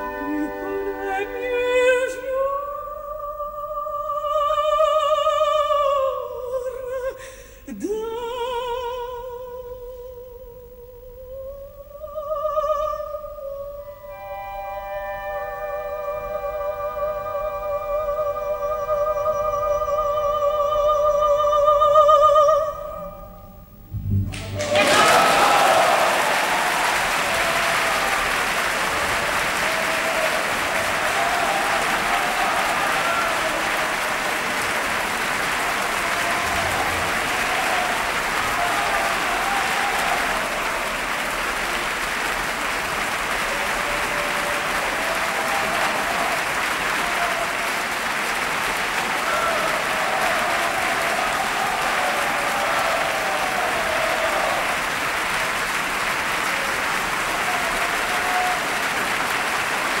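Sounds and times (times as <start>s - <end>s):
audience applauding: 24.0s - 60.0s.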